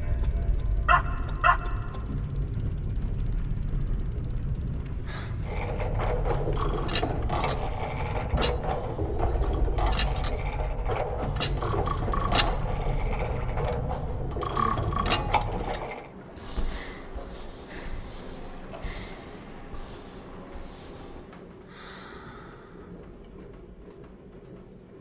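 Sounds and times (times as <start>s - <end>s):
steady low rumble: 0.0s - 14.4s
clockwork clicks and ratcheting: 0.0s - 16.1s.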